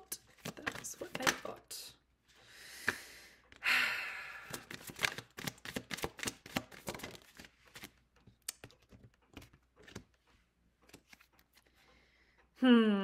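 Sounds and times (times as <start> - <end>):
cards shuffled by hand: 0.2 - 1.6, 4.4 - 10.2, 10.8 - 11.8.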